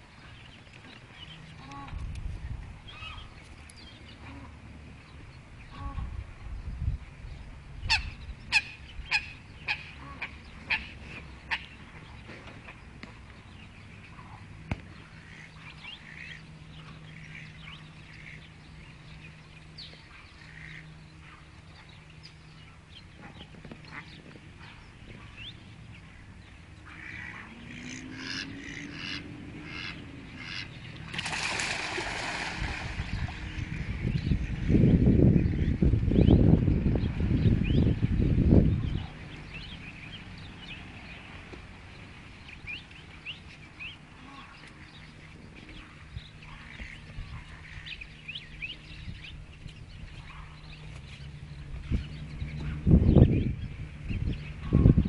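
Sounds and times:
ducks quacking: 0:26.8 - 0:34.1, 0:44.1 - 0:44.7, 0:54.6 - 0:55.0
ducks splashing and wingbeats: 0:26.8 - 0:34.8.

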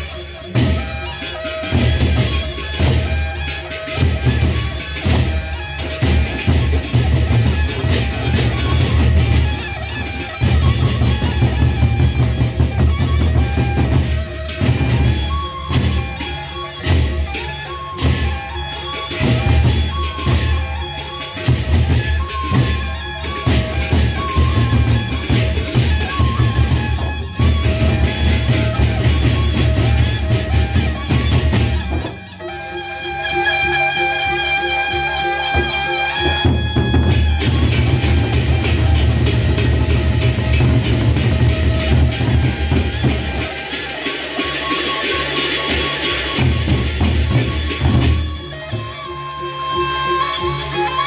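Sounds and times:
held melodic lines: 0:00.0 - 0:51.0
wind instrument holding notes: 0:00.0 - 0:51.0
deep drum beats: 0:01.7 - 0:20.7, 0:36.3 - 0:44.6
barrel drums pounding: 0:36.4 - 0:48.3.

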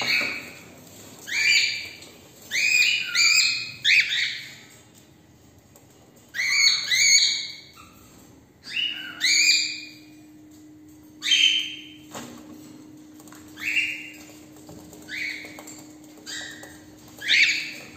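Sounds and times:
cockatiels calling: 0:00.0 - 0:04.8, 0:06.3 - 0:10.2, 0:13.6 - 0:17.9.

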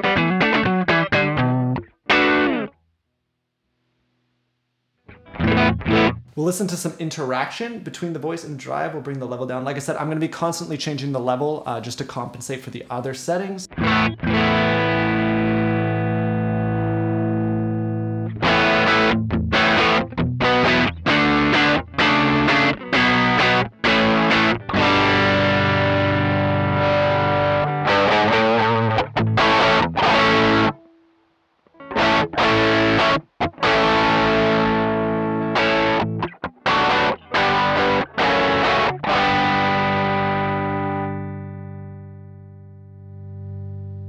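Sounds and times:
overdriven electric guitar chords: 0:00.0 - 0:02.8, 0:05.0 - 0:06.4, 0:13.7 - 0:44.0.

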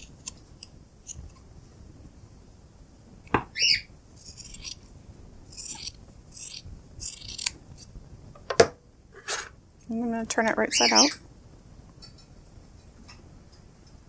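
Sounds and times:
bird chirp: 0:03.5 - 0:03.9.

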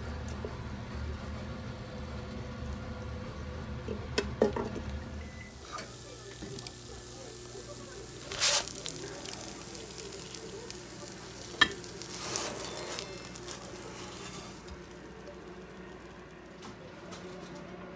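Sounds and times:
dumplings sizzling in frying pan: 0:05.5 - 0:16.5.

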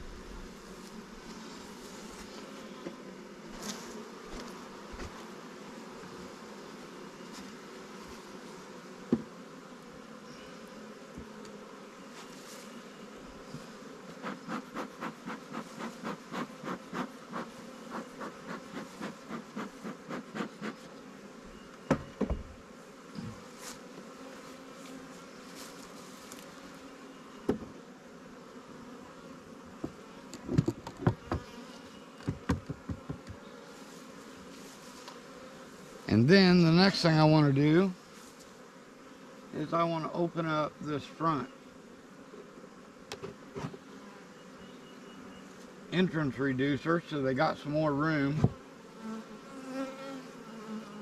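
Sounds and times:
bees buzzing: 0:00.0 - 0:51.0
hive covers knocking: 0:32.2 - 0:33.4.

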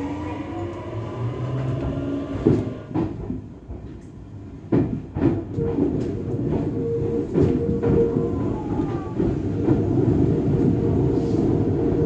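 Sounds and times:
train motor whine: 0:00.0 - 0:03.0
train wheels clacking over rail joints: 0:01.6 - 0:10.9.

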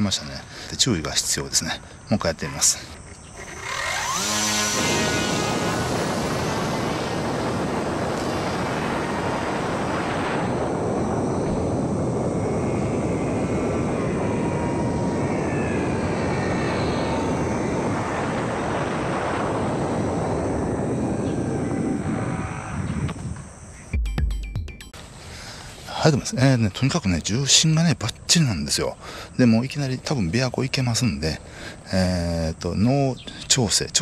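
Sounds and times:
faint whine: 0:00.0 - 0:24.0, 0:25.0 - 0:34.0
model plane motor whirring: 0:03.1 - 0:09.2
wind rush: 0:03.3 - 0:23.7.

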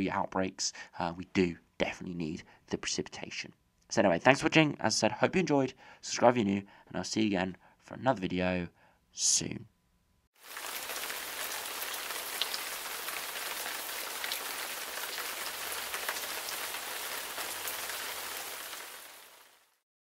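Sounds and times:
steady rain on hard surfaces: 0:10.4 - 0:19.8.

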